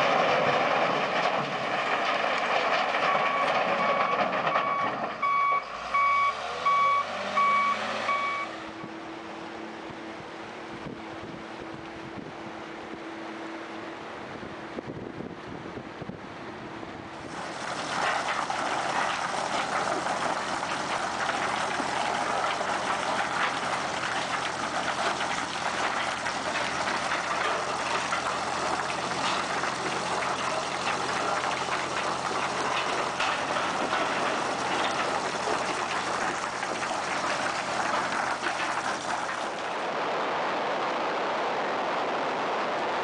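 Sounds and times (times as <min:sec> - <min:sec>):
boat engine humming: 0:07.5 - 0:14.8
water rushing around hull: 0:17.2 - 0:43.0.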